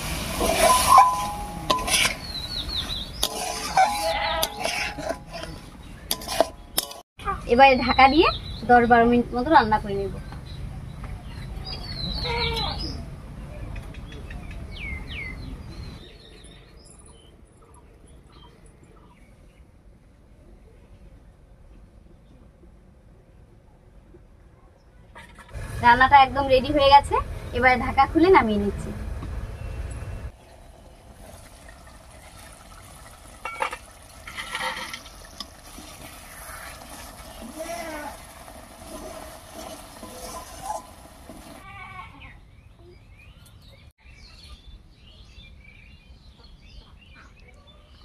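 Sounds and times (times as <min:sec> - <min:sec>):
pot lid clinking: 0:00.4 - 0:02.2, 0:03.2 - 0:07.0
birds chirping: 0:00.7 - 0:19.8, 0:29.2 - 0:31.0
curry bubbling in a pot: 0:31.1 - 0:41.6.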